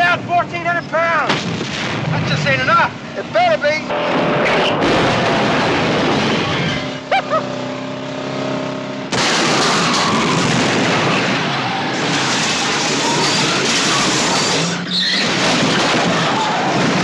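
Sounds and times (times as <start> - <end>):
car engines: 0.0 - 17.0
explosions: 1.3 - 2.6, 3.9 - 6.8, 9.1 - 14.3, 15.2 - 17.0
car crashes: 3.9 - 6.9, 9.1 - 17.0.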